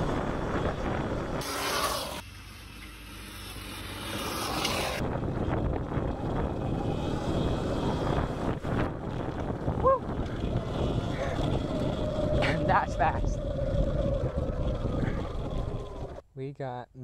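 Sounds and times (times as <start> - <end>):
wind on microphone: 0.0 - 1.5, 5.0 - 16.2
electric dirt bike riding: 0.0 - 16.2.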